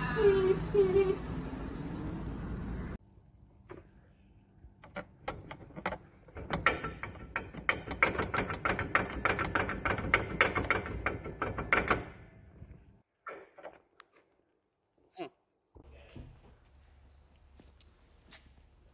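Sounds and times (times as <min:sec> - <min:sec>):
metallic clicking and knocking: 0:04.8 - 0:12.3.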